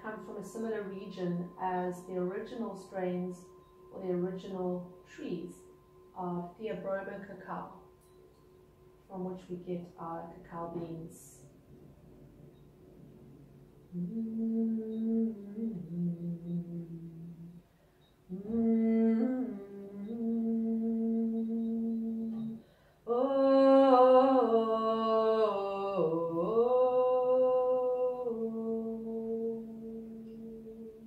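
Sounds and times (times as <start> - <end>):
woman singing wordless chant: 0.0 - 8.0, 13.9 - 17.6, 18.3 - 31.0.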